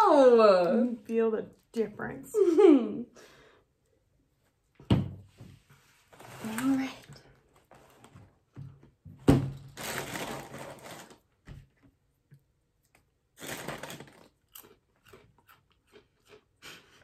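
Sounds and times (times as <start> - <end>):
plastic liner crinkling: 9.4 - 11.6, 13.4 - 14.4
crackers crunched and chewed: 12.8 - 17.0.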